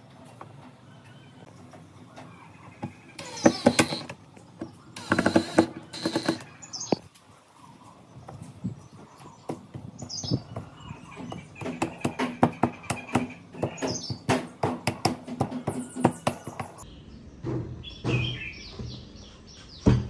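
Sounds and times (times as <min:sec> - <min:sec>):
bird chirps: 0:15.5 - 0:20.0.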